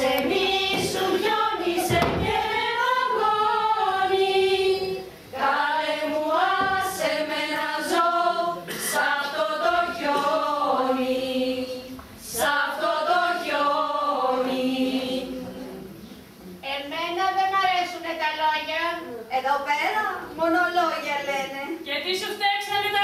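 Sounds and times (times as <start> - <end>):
women singing unaccompanied: 0.0 - 16.1.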